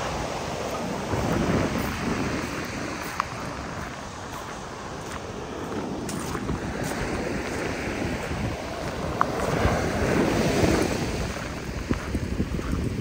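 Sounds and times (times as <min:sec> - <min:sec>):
heavy surf breaking on beach: 0:00.0 - 0:13.0
wind buffeting microphone: 0:00.0 - 0:13.0.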